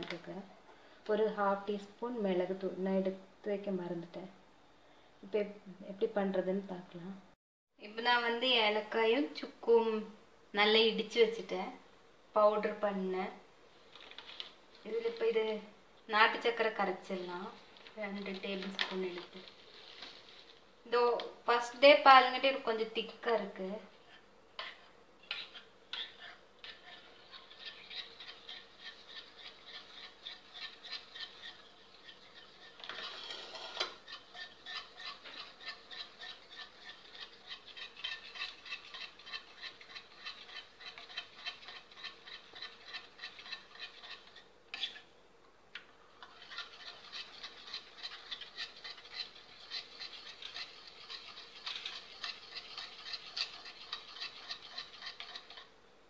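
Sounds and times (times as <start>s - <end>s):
spoon stirring in a bowl: 17.6s - 20.6s, 24.1s - 45.1s, 45.8s - 55.8s.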